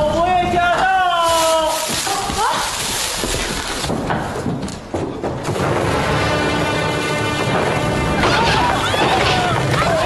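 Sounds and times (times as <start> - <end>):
fireworks crackling and booming: 0.0 - 10.0
dramatic background music: 5.6 - 10.0.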